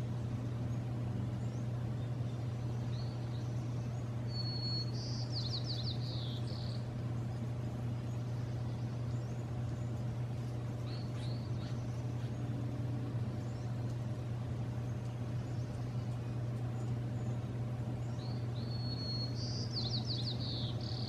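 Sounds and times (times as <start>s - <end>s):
steady low hum: 0.0s - 21.0s
songbird whistling and trilling: 1.4s - 6.9s, 10.8s - 12.4s, 18.0s - 21.0s.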